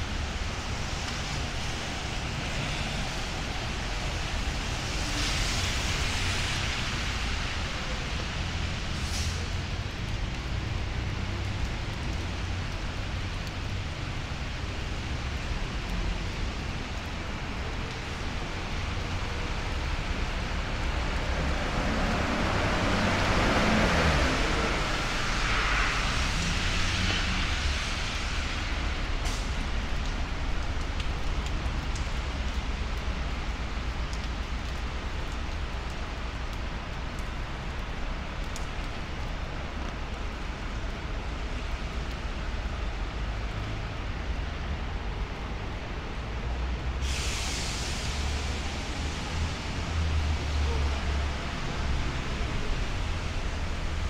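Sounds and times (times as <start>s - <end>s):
tyre hiss on wet road: 0.0s - 54.0s
vehicle passing by: 21.2s - 28.7s.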